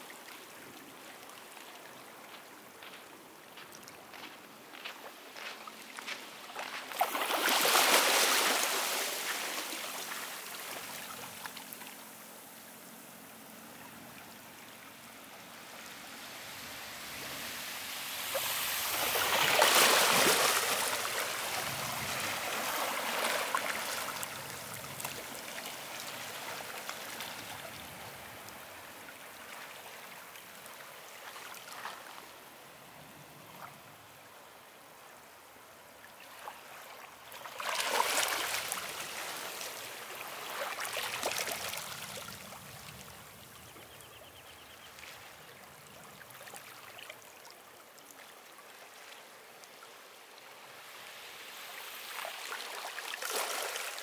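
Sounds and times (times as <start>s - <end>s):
waves breaking on beach: 4.1s - 12.4s, 13.7s - 32.4s, 36.2s - 43.2s, 50.4s - 54.0s
water hissing on sand: 15.7s - 27.9s.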